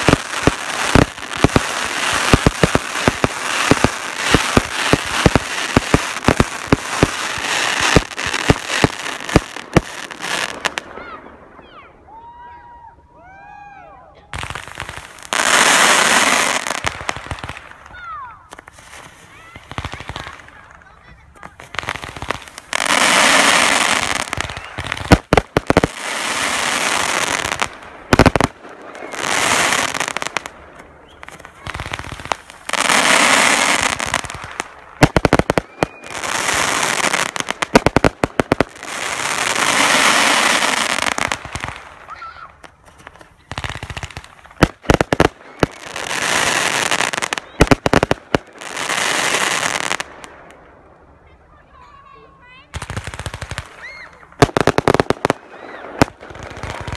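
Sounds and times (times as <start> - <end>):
fireworks hissing: 0.0 - 10.8
fireworks bangs and crackling: 0.0 - 12.4, 14.2 - 56.9.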